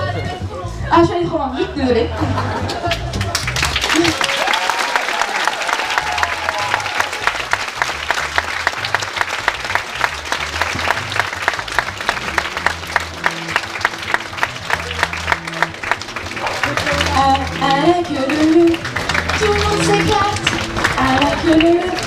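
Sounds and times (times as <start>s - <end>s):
music with pulsing bass line: 0.0s - 4.1s, 6.0s - 22.0s
audience clapping in rhythm: 2.5s - 22.0s.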